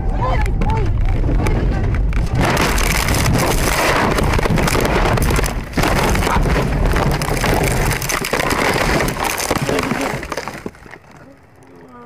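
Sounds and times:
car crashing through brush: 0:02.2 - 0:10.8.

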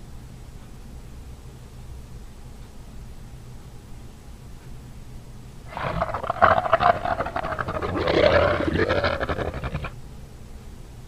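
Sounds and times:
dinosaur roar: 0:05.7 - 0:10.0.

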